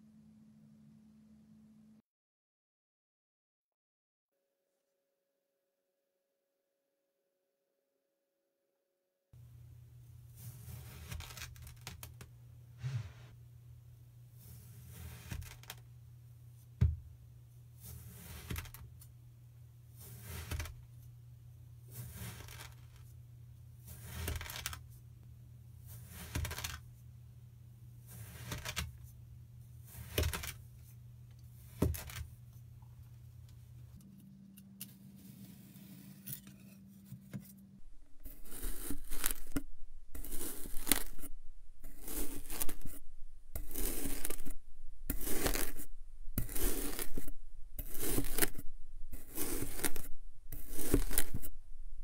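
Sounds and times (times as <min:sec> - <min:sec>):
faint low hum: 0:00.0 - 0:02.0, 0:28.8 - 0:52.0
knife crunching through sand: 0:38.2 - 0:51.6.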